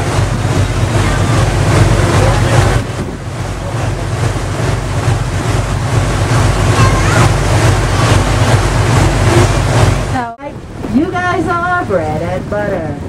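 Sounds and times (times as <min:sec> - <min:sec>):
boat engine humming: 0:00.0 - 0:13.0
water rushing past hull: 0:00.0 - 0:13.0
wind on microphone: 0:00.0 - 0:13.0.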